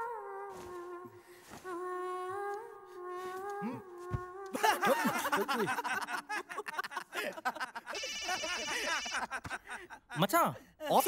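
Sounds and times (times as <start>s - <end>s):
men laughing: 4.5s - 10.3s
mobile phone ringtone: 7.9s - 9.2s.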